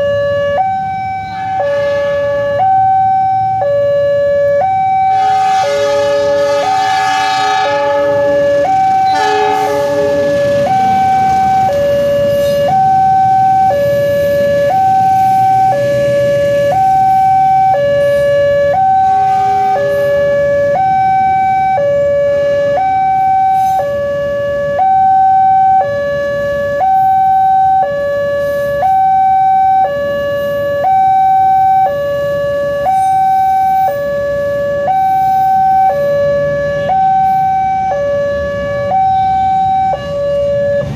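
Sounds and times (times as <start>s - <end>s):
passing train rumble: 0.0s - 24.1s, 35.2s - 40.9s
level crossing two-tone alarm: 0.0s - 40.9s
train horn: 1.2s - 2.6s, 5.0s - 12.7s, 19.0s - 20.2s.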